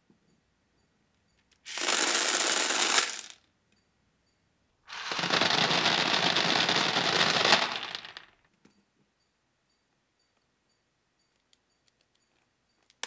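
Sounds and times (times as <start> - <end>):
plastic pellets clattering into box: 1.7 - 3.4, 4.9 - 8.4.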